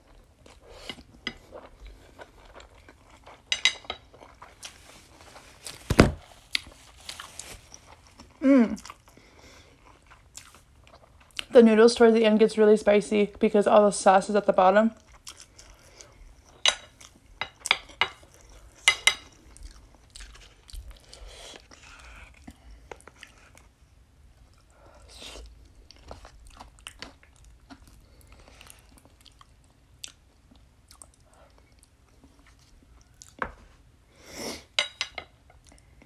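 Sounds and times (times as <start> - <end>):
person chewing: 0.0 - 5.7, 6.5 - 11.5, 15.0 - 23.8, 24.5 - 33.4.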